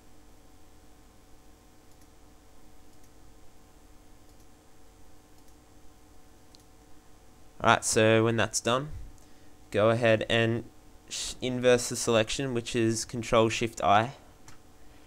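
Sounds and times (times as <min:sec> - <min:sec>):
faint steady hum: 0:00.0 - 0:15.0
computer mouse clicks: 0:01.9 - 0:02.2, 0:02.9 - 0:03.2, 0:04.2 - 0:04.5, 0:05.4 - 0:05.6, 0:06.5 - 0:06.7.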